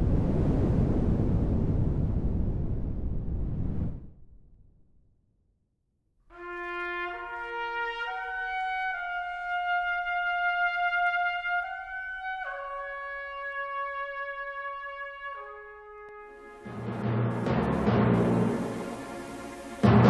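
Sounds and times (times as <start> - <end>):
slow brass melody: 6.3 - 20.0.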